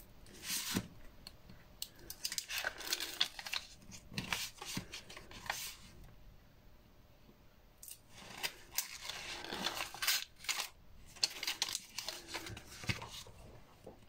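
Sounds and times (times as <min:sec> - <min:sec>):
paper and tape backing rustling: 0:02.1 - 0:05.9, 0:08.1 - 0:13.5.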